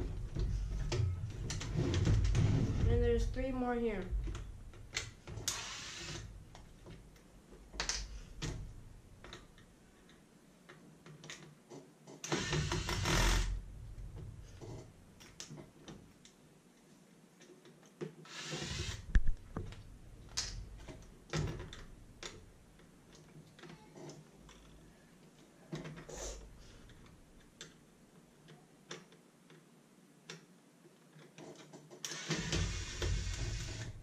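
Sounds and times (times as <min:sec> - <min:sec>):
electric screwdriver whirring: 0:05.4 - 0:06.3, 0:12.2 - 0:13.5, 0:18.3 - 0:19.1, 0:32.0 - 0:34.0.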